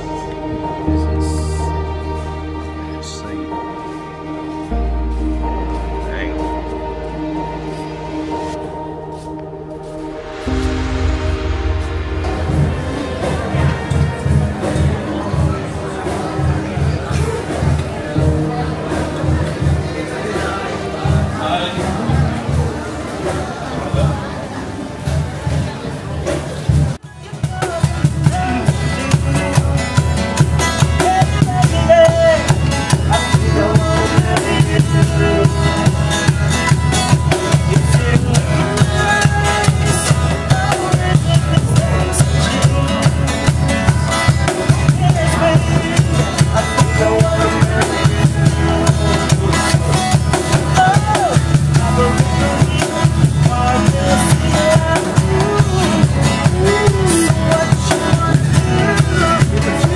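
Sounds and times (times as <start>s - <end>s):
acoustic guitars playing: 0.0s - 25.4s, 27.5s - 59.9s
box drum beat: 27.2s - 59.9s.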